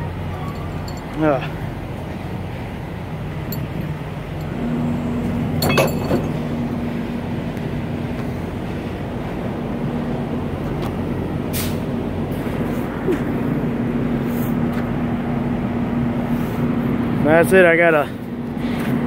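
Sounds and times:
diesel engine idling: 0.0s - 18.7s
sharp metallic clank: 5.6s - 6.4s.

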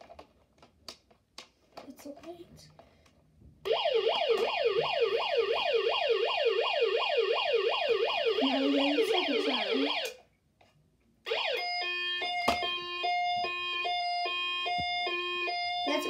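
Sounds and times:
toy fire truck siren: 3.7s - 10.2s, 11.3s - 16.0s.

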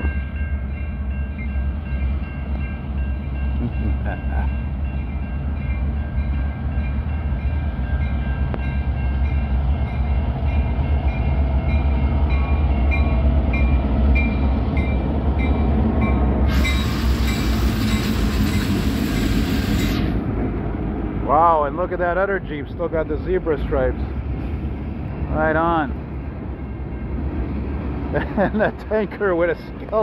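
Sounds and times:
locomotive engine drone: 0.0s - 30.0s
loud hiss: 16.5s - 20.2s.

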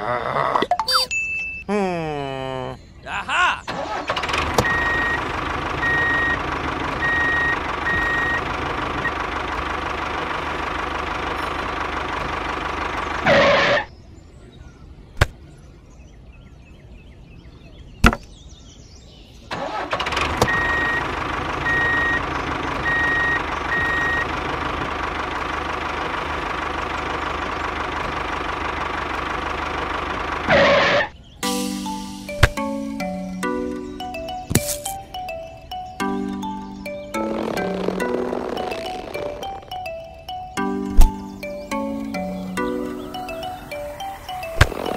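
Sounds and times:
tractor engine knocking: 4.1s - 13.6s, 19.7s - 30.6s, 33.4s - 44.9s.

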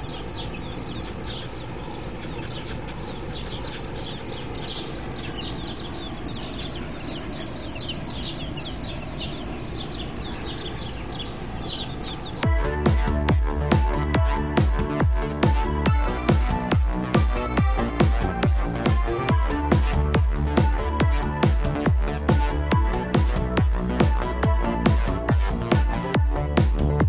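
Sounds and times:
baby chicks peeping: 0.0s - 27.0s
low steady rumble: 0.0s - 27.0s
electronic music: 12.4s - 27.0s.

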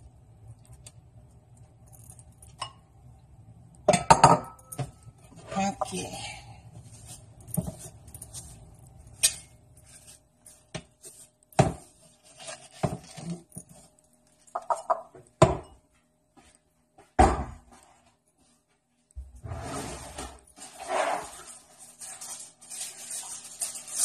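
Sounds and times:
spoon clinking and scraping bowl: 7.0s - 11.3s, 14.5s - 15.0s.

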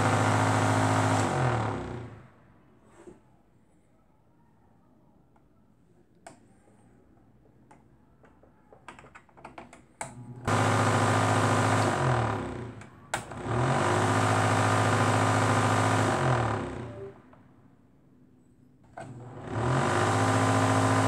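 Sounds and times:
fan motor buzzing: 10.3s - 17.0s, 19.0s - 21.0s.

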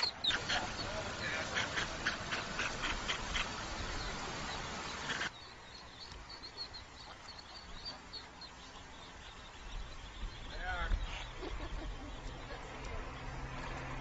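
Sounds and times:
duck calling: 0.0s - 3.8s
ducklings peeping: 0.0s - 14.0s
street background noise: 0.0s - 14.0s.

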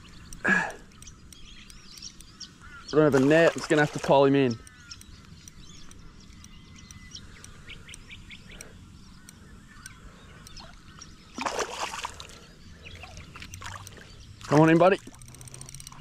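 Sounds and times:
faint birds calling: 0.0s - 16.0s
fish splashing at surface: 11.4s - 12.4s.

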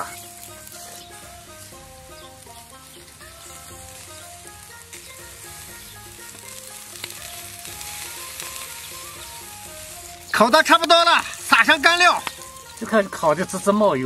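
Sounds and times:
sausages sizzling on a grill: 0.0s - 14.0s
sharp crackles: 0.0s - 14.0s.

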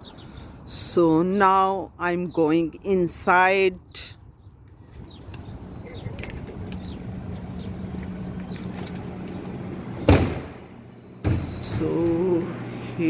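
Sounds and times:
steady low hum: 5.2s - 13.0s
door shutting thud: 10.0s - 10.6s.

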